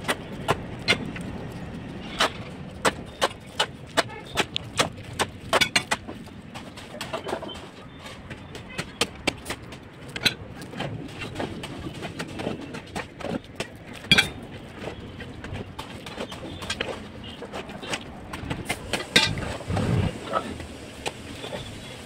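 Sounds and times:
shovel scraping gravel: 1.9s - 6.0s.

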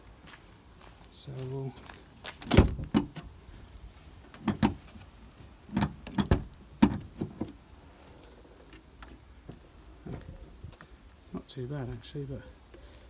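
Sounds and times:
car bonnet clunks and knocks: 2.4s - 3.3s, 4.4s - 4.8s, 5.7s - 7.6s.

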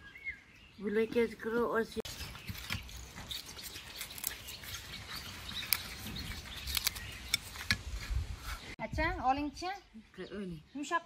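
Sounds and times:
birds chirping: 0.0s - 11.0s
pastry dough tearing and crackling: 2.6s - 7.9s.

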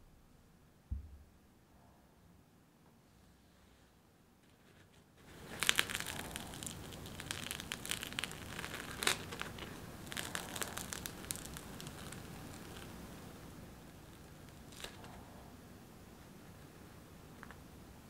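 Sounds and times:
bagel crust crackling and tearing: 4.5s - 15.2s.

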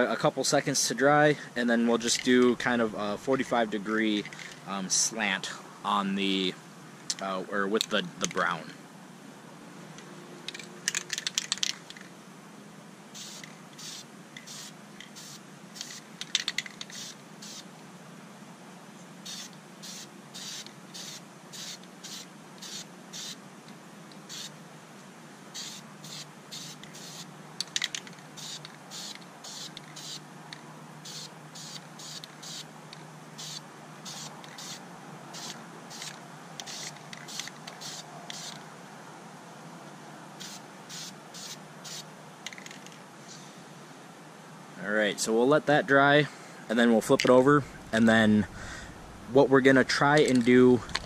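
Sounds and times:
spray paint can hissing: 13.1s - 17.7s, 19.2s - 23.4s, 24.2s - 24.6s, 25.5s - 30.2s, 31.0s - 32.7s, 33.4s - 38.6s, 40.4s - 42.7s.

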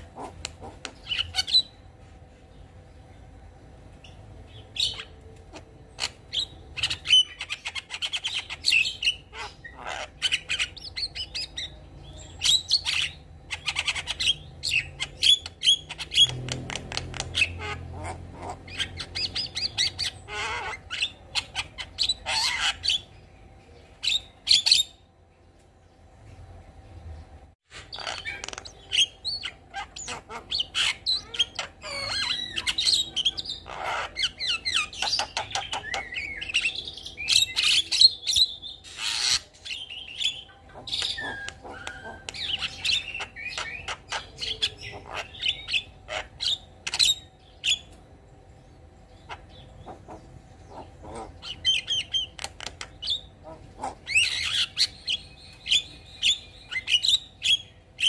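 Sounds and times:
bird singing whistles and clicks: 41.0s - 42.5s.

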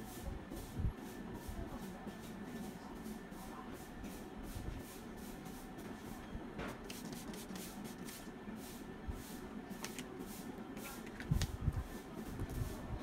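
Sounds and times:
pump spray misting: 6.8s - 11.6s.

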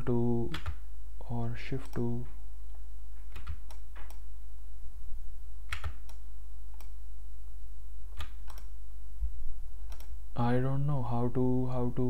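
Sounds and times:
steady low hum: 0.0s - 12.0s
computer keys and mouse clicking: 0.4s - 0.8s, 1.7s - 2.2s, 3.3s - 4.2s, 5.7s - 7.0s, 8.1s - 8.7s, 9.8s - 10.2s.

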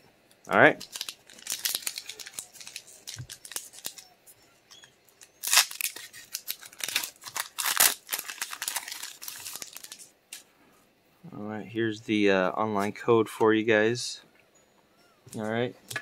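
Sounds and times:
foil wrapper crackling: 0.8s - 4.1s, 5.1s - 10.4s.

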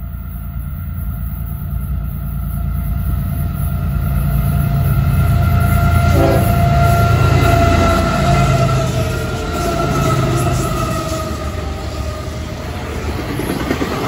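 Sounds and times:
locomotive engine rumble: 0.0s - 14.0s
steady higher tones: 2.9s - 13.0s.

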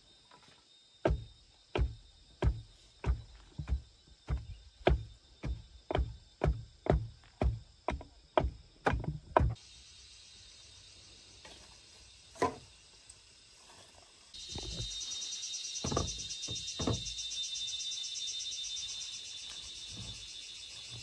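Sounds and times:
pulsing insect chorus: 0.0s - 21.0s
pole thudding on soil: 12.4s - 12.7s, 15.8s - 17.0s.

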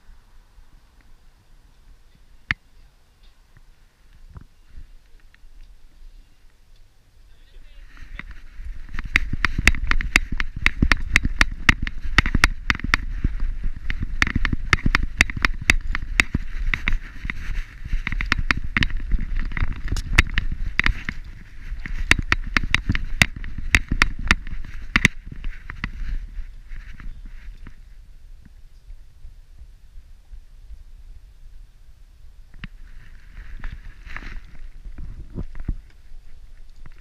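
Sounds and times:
camera jostling rumble: 7.8s - 29.8s, 32.5s - 37.0s.

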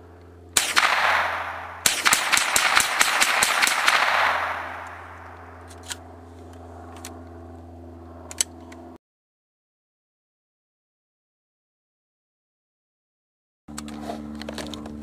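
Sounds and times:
rifle shots fired rapidly: 0.6s - 5.3s.

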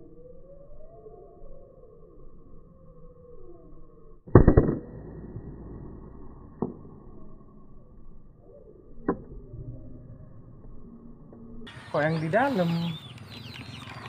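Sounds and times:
air rifle shot: 4.3s - 6.8s
sharp clicks: 13.1s - 14.0s.

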